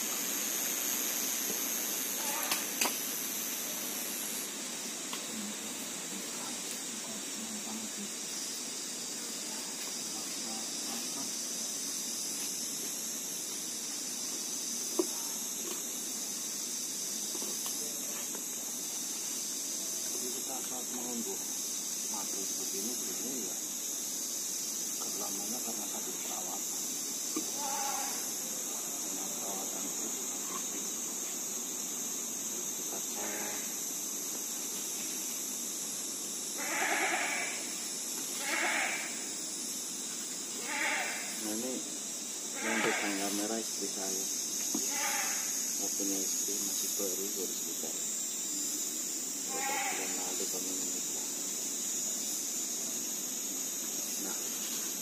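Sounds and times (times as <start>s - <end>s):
high-pitched insect chorus: 0.0s - 55.0s
goat bleating: 36.6s - 37.5s, 38.4s - 39.1s, 40.6s - 41.3s.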